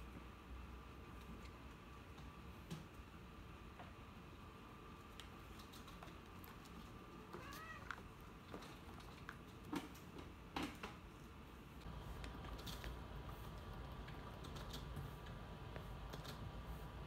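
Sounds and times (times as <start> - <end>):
cat meowing: 7.2 - 8.0.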